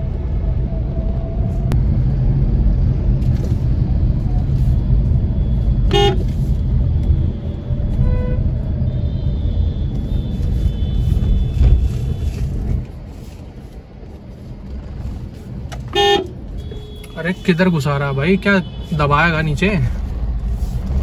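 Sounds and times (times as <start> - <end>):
low rumble of road traffic: 0.0 - 21.0
vehicle horn beeps: 5.9 - 6.3, 8.0 - 12.5, 15.9 - 19.1.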